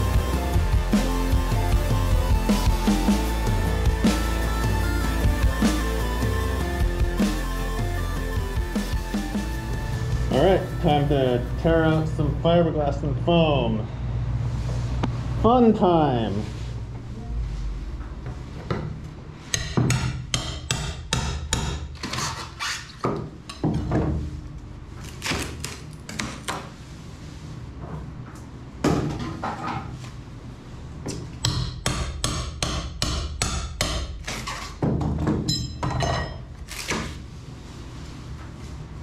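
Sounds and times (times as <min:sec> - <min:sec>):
low steady hum: 0:00.0 - 0:19.7.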